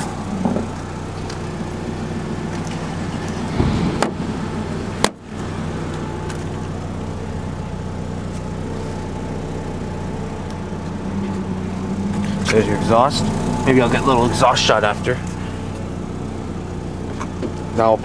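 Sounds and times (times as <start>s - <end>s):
car engine idling: 0.0s - 18.0s.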